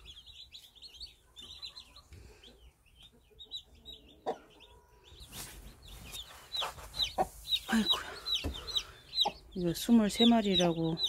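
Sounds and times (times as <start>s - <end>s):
chicks peeping: 0.0s - 11.0s.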